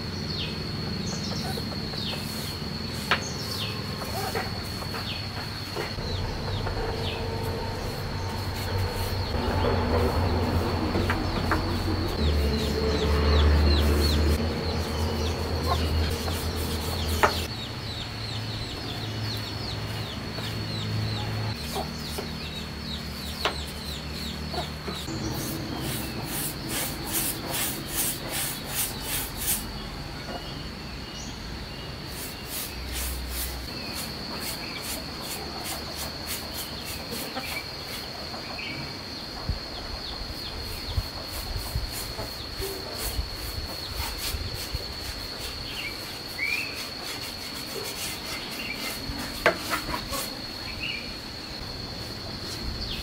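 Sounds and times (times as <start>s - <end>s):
insect high trill: 0.0s - 18.6s, 21.1s - 30.1s, 40.3s - 53.0s
insects pulsing chirps: 0.0s - 53.0s
chickens clucking: 24.4s - 29.6s, 34.0s - 38.5s, 47.9s - 50.6s.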